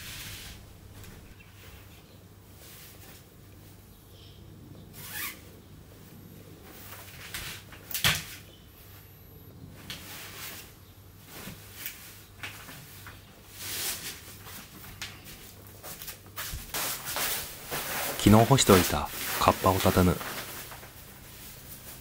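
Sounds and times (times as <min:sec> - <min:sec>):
clothes rustling: 0:09.8 - 0:22.0.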